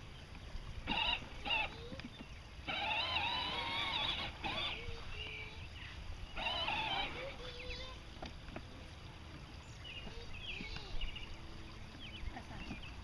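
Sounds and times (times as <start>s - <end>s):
toy tractor electric motor whining: 0.8s - 5.6s, 6.3s - 8.6s.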